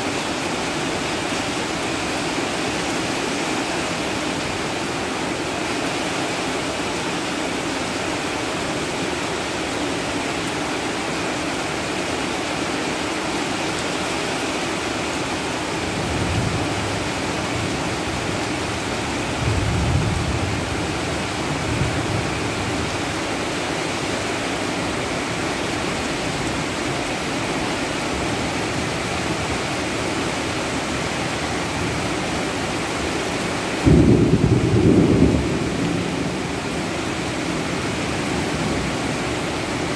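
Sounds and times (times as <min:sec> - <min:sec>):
heavy rain pouring: 0:00.0 - 0:39.9
distant thunder rumbling: 0:33.8 - 0:36.7.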